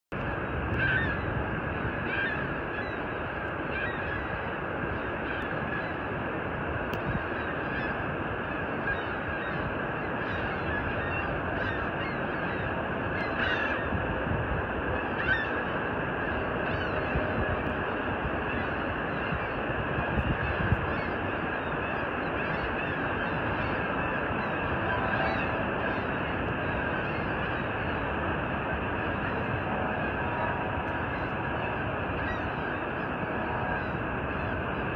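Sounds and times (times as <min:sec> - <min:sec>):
waterfall roaring: 0:00.2 - 0:34.9
bird calls: 0:00.7 - 0:06.1, 0:07.1 - 0:14.0, 0:14.9 - 0:17.5, 0:18.3 - 0:34.9.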